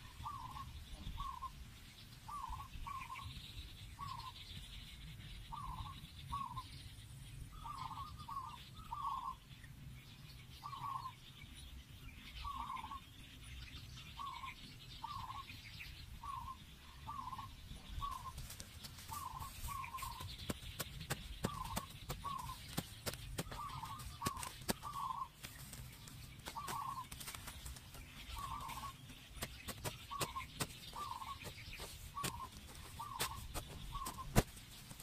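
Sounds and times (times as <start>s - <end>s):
bird clucking: 19.0s - 35.0s
sharp irregular taps: 20.0s - 25.8s, 26.4s - 34.6s.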